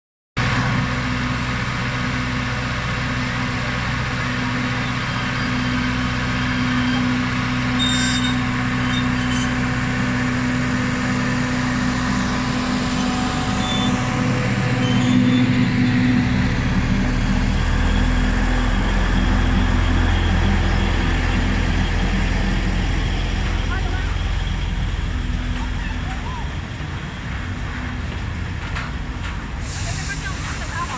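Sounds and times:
diesel locomotive engine drone: 0.4s - 30.9s.

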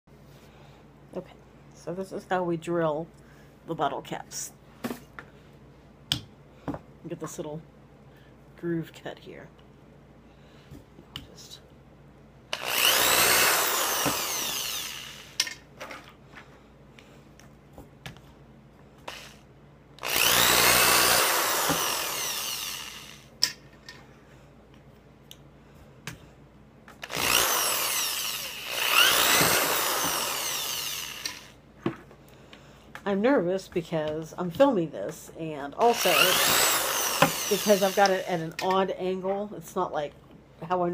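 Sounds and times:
power drill boring plastic: 12.5s - 15.4s, 19.1s - 19.4s, 20.0s - 23.3s, 27.0s - 31.6s, 35.8s - 38.5s.

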